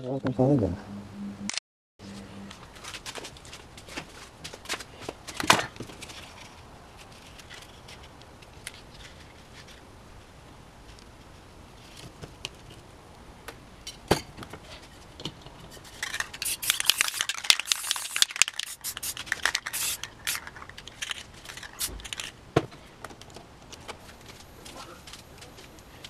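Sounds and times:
paper and cans clicking: 0:15.9 - 0:22.3
spray paint can hissing: 0:16.2 - 0:20.6, 0:21.6 - 0:22.2.

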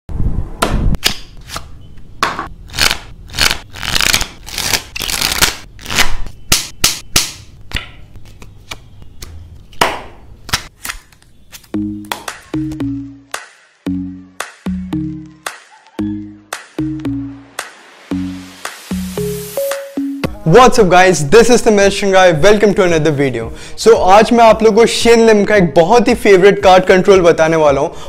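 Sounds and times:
playing cards shuffling: 0:02.7 - 0:06.3, 0:07.7 - 0:09.8, 0:10.4 - 0:12.8
music with low notes: 0:11.7 - 0:21.0.

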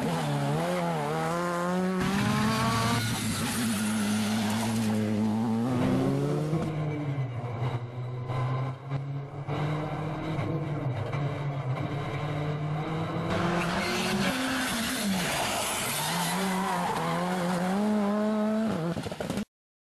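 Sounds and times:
rally car engine running: 0:00.0 - 0:14.8.

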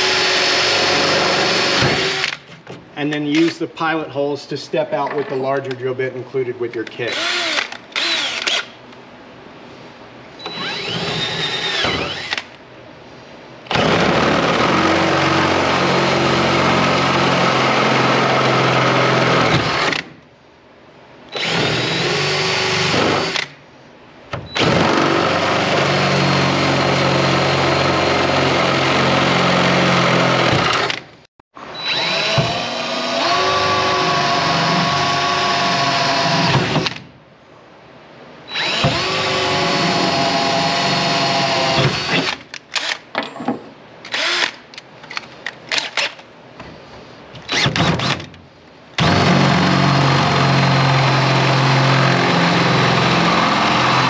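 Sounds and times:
cordless drill whining: 0:07.1 - 0:08.7, 0:10.4 - 0:12.6, 0:21.3 - 0:23.5, 0:31.8 - 0:37.0, 0:38.5 - 0:43.0, 0:44.1 - 0:44.6.

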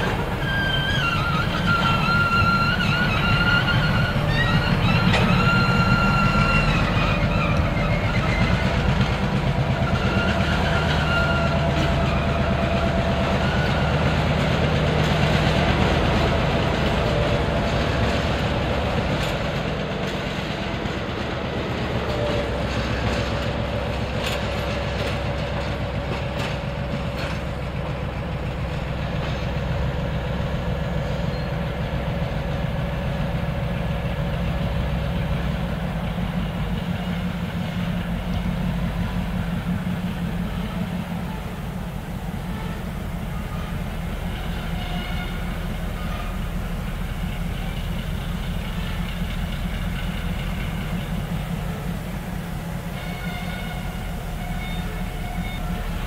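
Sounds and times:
high wheel squeals: 0:00.0 - 0:08.9, 0:09.7 - 0:14.2, 0:28.5 - 0:32.0, 0:48.8 - 0:56.0
diesel locomotive engine running: 0:00.0 - 0:56.0
wheels clicking over rail joints: 0:00.0 - 0:56.0.

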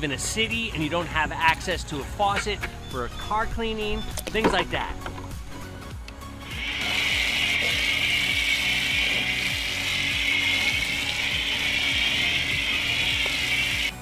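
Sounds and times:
pressure washer spray hissing: 0:06.4 - 0:14.0
pump motor running: 0:06.4 - 0:14.0.

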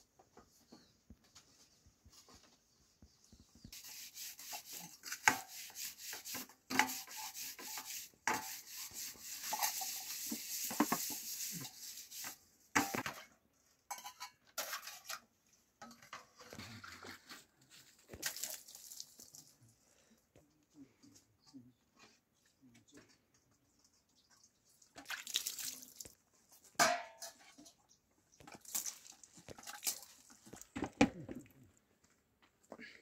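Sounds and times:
steady hiss: 0:03.7 - 0:12.4
metal pots and dishes clattering: 0:12.8 - 0:17.2, 0:26.8 - 0:27.8.

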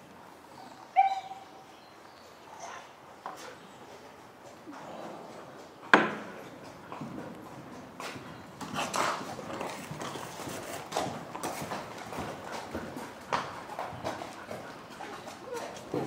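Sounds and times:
horse hoofbeats on sand: 0:03.6 - 0:16.0.

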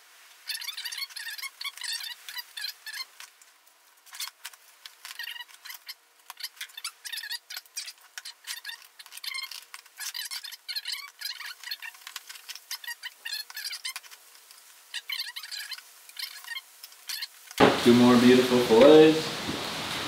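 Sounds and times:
quick high chirping: 0:00.5 - 0:03.1.

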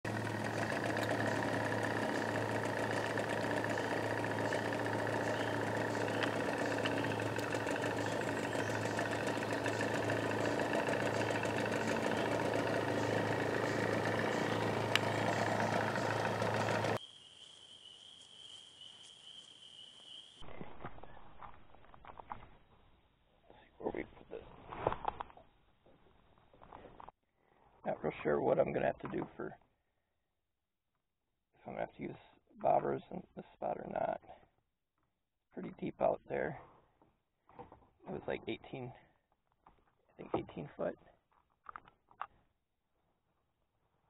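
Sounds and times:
low motor hum: 0:00.0 - 0:17.0.

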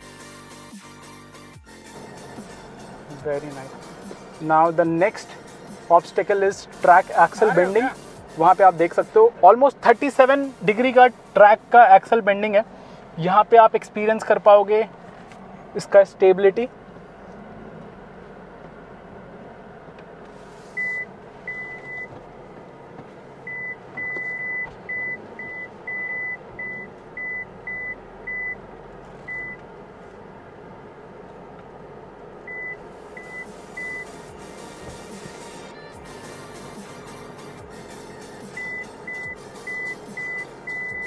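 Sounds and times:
low vehicle hum: 0:00.0 - 0:41.0
parking sensor beeps: 0:20.7 - 0:22.2, 0:23.4 - 0:28.6, 0:29.2 - 0:29.6, 0:32.4 - 0:36.8, 0:38.3 - 0:41.0.

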